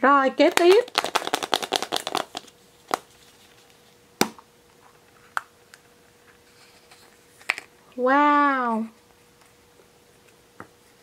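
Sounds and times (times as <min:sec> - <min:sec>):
plastic egg snapping open: 0:00.5 - 0:03.1.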